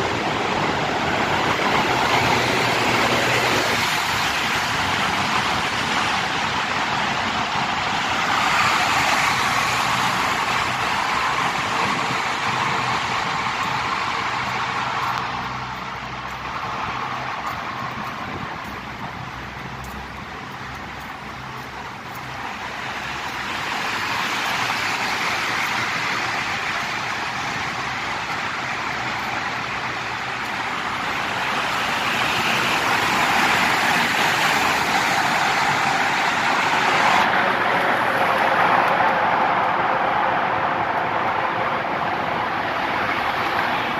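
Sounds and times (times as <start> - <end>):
traffic echoing in tunnel: 0.0 - 43.9.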